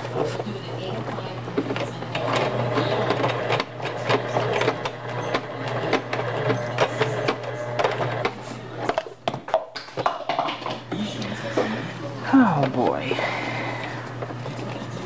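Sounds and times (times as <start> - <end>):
sewing machine stitching: 1.6 - 8.4.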